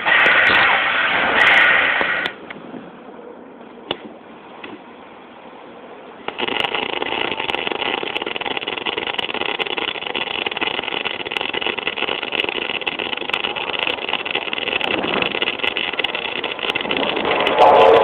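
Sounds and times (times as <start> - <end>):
sharp welding clicks: 6.3 - 18.0
welding arc buzzing: 6.3 - 18.0.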